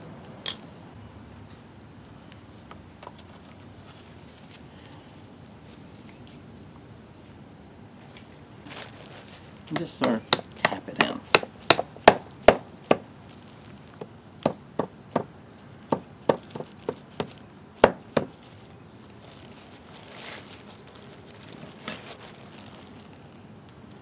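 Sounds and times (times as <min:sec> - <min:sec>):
faint handling noise: 0:01.4 - 0:07.4, 0:08.0 - 0:10.3, 0:18.3 - 0:24.0.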